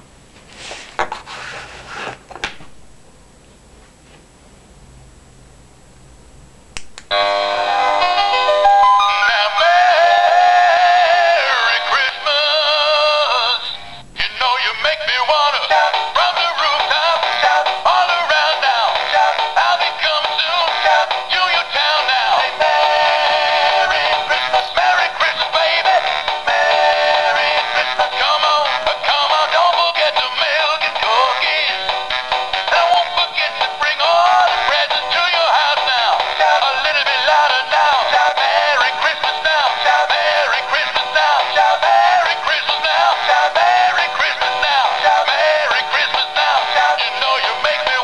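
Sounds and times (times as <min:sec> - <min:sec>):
toy speaker playing song: 0:15.4 - 0:48.0.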